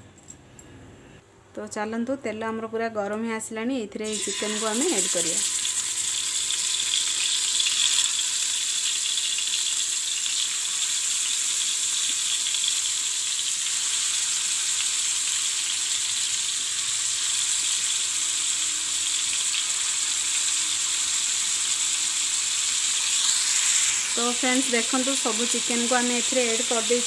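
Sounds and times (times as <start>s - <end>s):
chicken sizzling in hot oil: 4.0s - 27.0s.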